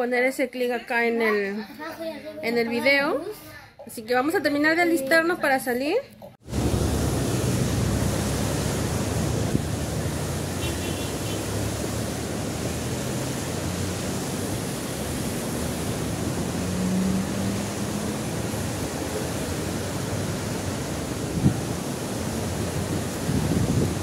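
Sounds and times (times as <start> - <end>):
river in flood rushing: 6.4 - 24.0.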